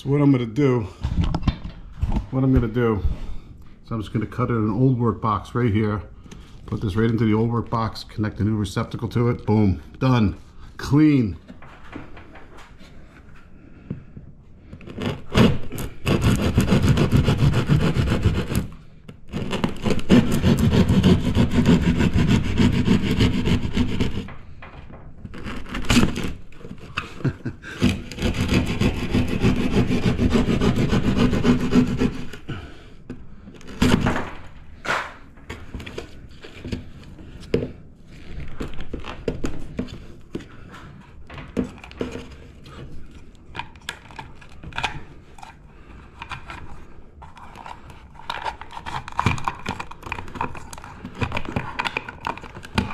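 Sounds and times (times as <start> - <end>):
hand saw cutting drywall: 14.8 - 24.3, 25.3 - 32.9, 33.5 - 35.0, 43.6 - 52.9.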